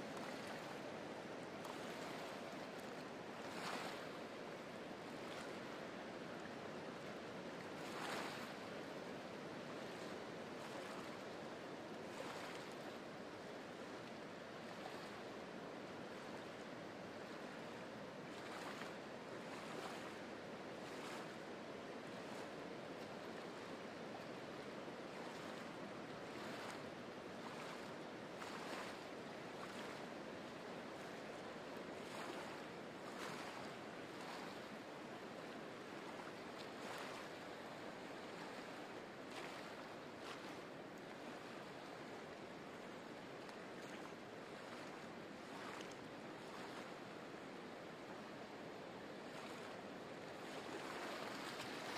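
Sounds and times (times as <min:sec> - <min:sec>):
water splashes: 0:00.0 - 0:05.8, 0:07.6 - 0:08.7, 0:12.1 - 0:13.0, 0:25.1 - 0:47.1, 0:49.2 - 0:51.9
waves lapping on rock: 0:00.0 - 0:05.8, 0:25.3 - 0:47.2, 0:49.3 - 0:51.9.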